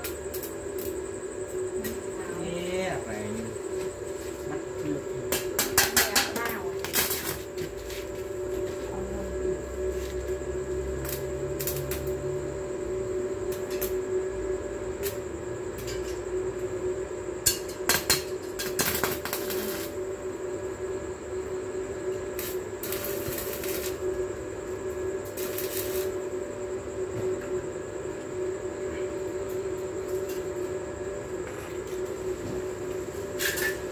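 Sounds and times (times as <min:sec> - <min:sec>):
welding arc crackling: 0:00.0 - 0:01.1, 0:05.3 - 0:08.8, 0:09.8 - 0:12.5, 0:17.4 - 0:20.0, 0:22.2 - 0:26.3
arc welding hum: 0:00.0 - 0:33.9.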